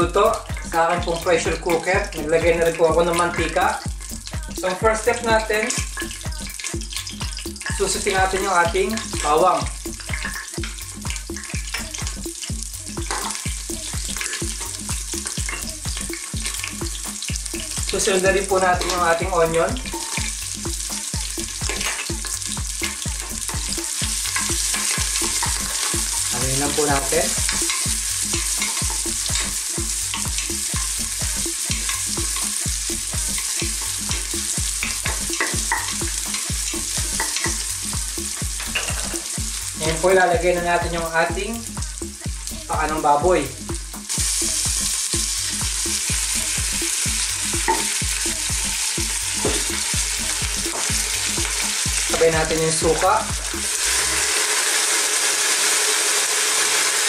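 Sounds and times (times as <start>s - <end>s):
music with steady beat: 0.0s - 54.3s
garlic sizzling in oil: 0.0s - 57.0s.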